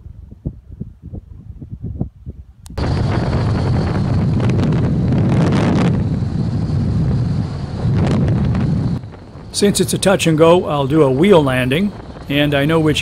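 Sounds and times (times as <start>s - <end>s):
wind rush on microphone: 0.0s - 13.0s
airplane engine running: 2.8s - 13.0s.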